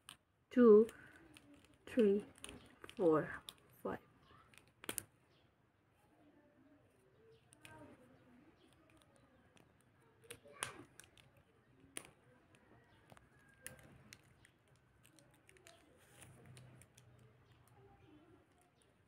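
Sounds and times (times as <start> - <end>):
plastic marker caps clicking: 0.0 - 5.4, 7.2 - 19.0.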